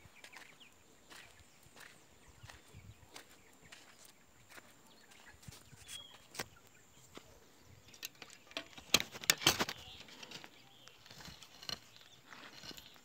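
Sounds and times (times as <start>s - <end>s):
footsteps crunching on leaves: 0.2s - 6.5s.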